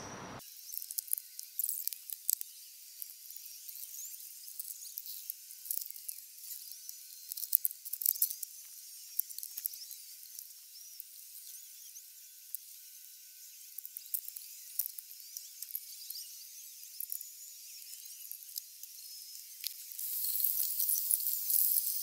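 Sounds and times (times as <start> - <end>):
high-pitched scratching and clicking: 18.0 - 22.0.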